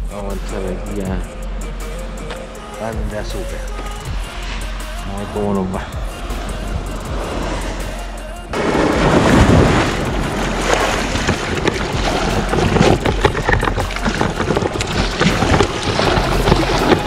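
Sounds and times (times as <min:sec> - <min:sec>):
water sloshing against hull: 0:03.4 - 0:17.0
paddle splashing in water: 0:08.6 - 0:17.0.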